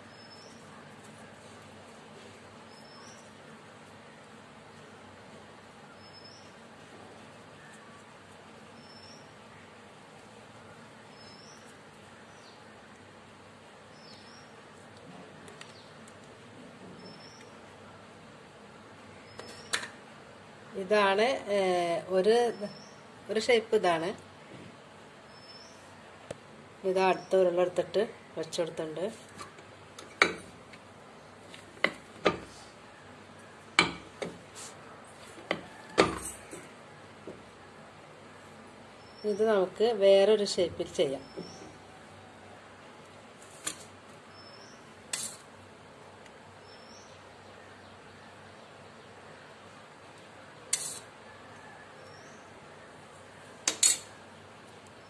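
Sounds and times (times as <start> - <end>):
faint high chirp: 0.0 - 1.0, 2.6 - 3.4, 5.9 - 6.6, 8.7 - 9.7, 11.1 - 12.6, 16.9 - 17.6, 19.2 - 19.8, 44.3 - 44.9.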